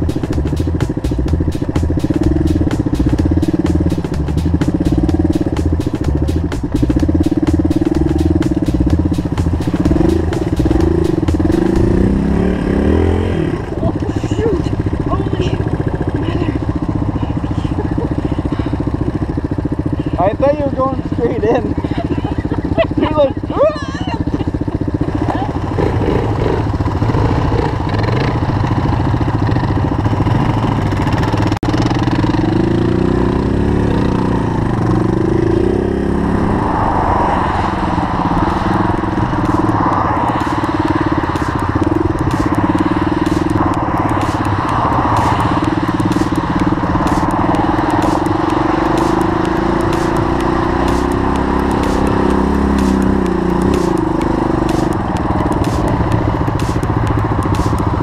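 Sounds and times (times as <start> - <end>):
engine crackling: 0.0 - 58.0
motorcycle engine revving: 0.0 - 58.0.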